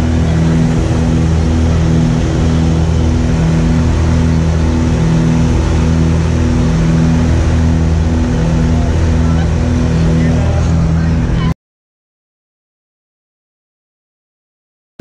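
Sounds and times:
propeller plane engine drone: 0.0s - 11.6s.

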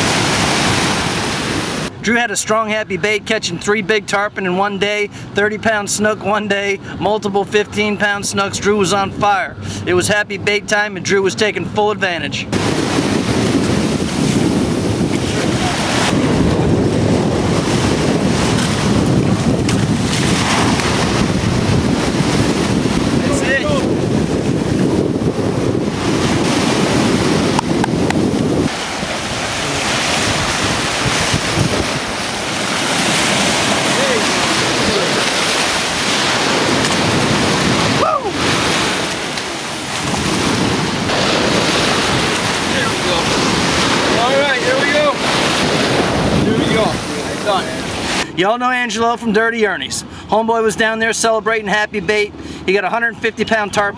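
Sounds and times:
waves washing in surf: 0.0s - 2.0s, 12.4s - 48.4s
wind rumbling on microphone: 12.4s - 48.2s
rising and falling cry: 37.9s - 38.6s.

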